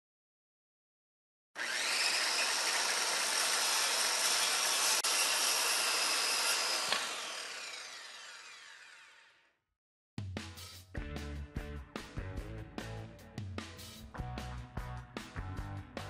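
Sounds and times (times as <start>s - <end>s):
power saw whining: 1.6s - 9.4s.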